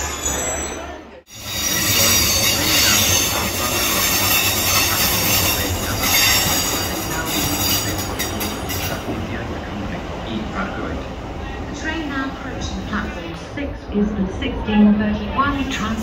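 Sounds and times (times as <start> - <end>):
high-pitched wheel squeal: 0.0 - 8.0
train rumbling past: 0.0 - 16.0.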